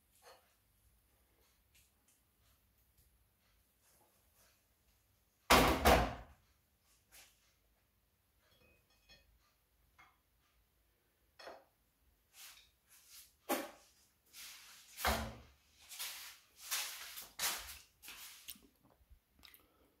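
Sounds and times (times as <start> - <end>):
kitchen rustles and knocks: 13.4 - 14.0, 14.6 - 18.3.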